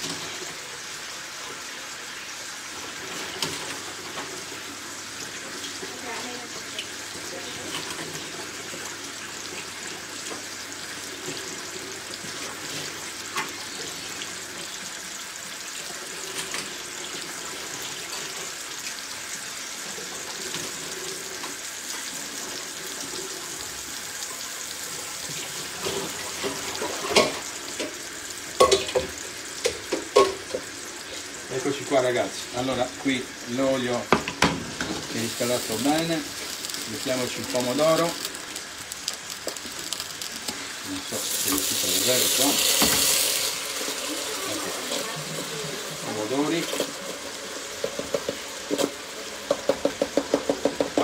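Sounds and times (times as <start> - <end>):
fish frying in oil: 0.0 - 51.0.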